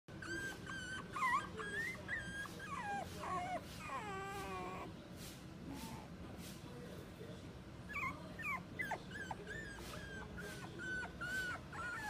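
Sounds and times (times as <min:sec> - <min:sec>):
puppy whining: 0:00.1 - 0:05.0, 0:07.8 - 0:12.0.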